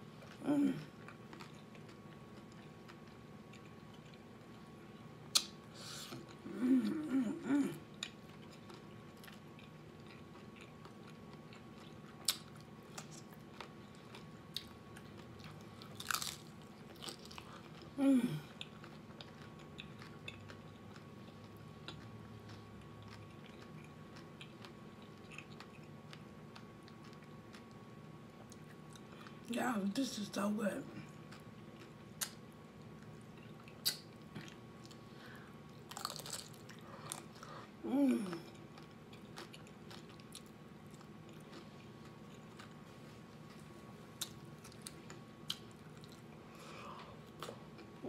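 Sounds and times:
chewing crunchy taco shell: 0.1 - 29.5, 31.0 - 48.0
person humming: 0.4 - 0.9, 6.4 - 7.8, 18.0 - 18.5, 37.8 - 38.5.

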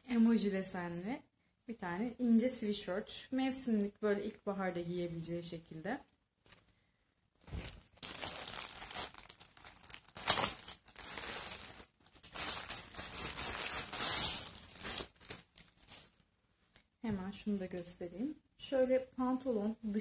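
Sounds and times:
plastic garment bag rustling: 7.4 - 16.3.

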